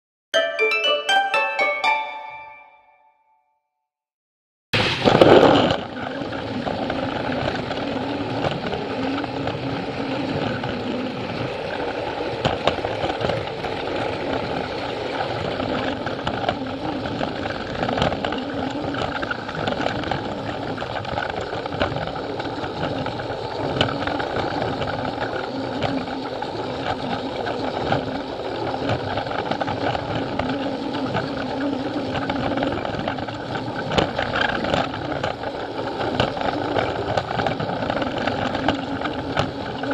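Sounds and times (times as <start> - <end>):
loud burst of noise: 4.8 - 6.6
plastic wheels rattling on rails: 4.8 - 39.9
toy train motor whirring: 5.0 - 39.9.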